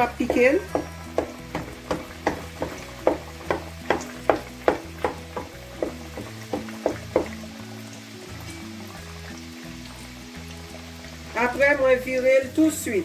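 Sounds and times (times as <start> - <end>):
pastries sizzling in hot oil: 0.0 - 13.0
background music with beat: 0.2 - 9.5.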